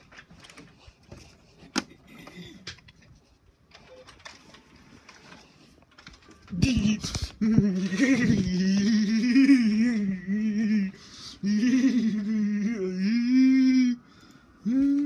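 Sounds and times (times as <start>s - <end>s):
person humming: 6.5s - 15.0s.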